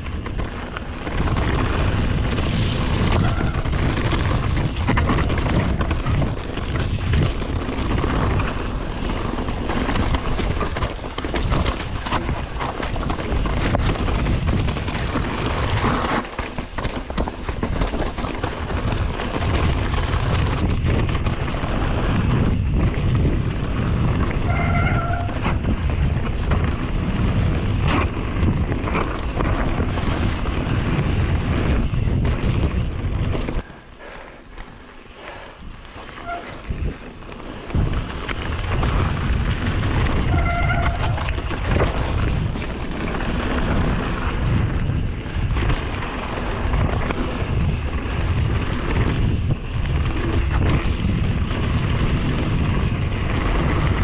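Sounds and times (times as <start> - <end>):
tyres rolling over wet gravel: 0.0 - 20.7, 33.6 - 54.0
bike knocks and rattles: 0.0 - 54.0
wind on microphone: 0.0 - 54.0
short pitched squeal: 36.2 - 36.7.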